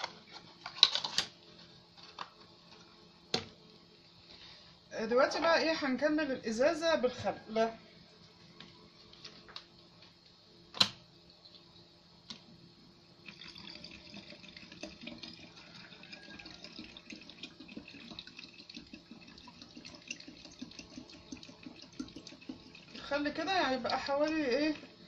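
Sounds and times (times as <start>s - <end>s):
liquid pouring into plastic bottle: 13.2s - 24.4s.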